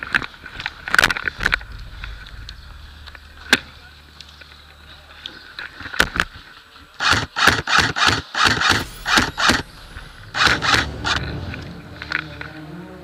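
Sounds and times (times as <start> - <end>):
airsoft gun single shots: 7.0 - 9.7.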